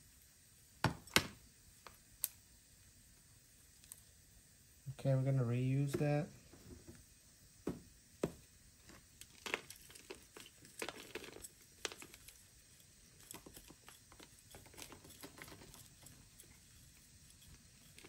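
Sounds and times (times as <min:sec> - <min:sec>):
metal pick scratching soil: 0:09.5 - 0:18.0.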